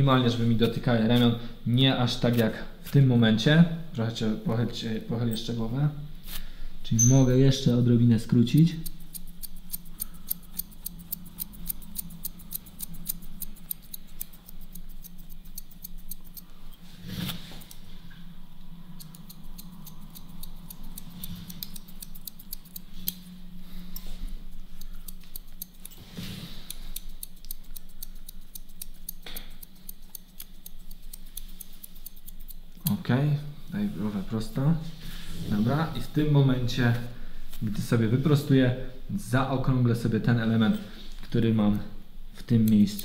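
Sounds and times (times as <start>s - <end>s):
steady low hum: 0.0s - 43.0s
scissors snipping hair: 8.3s - 16.8s, 19.0s - 33.0s, 42.4s - 43.0s.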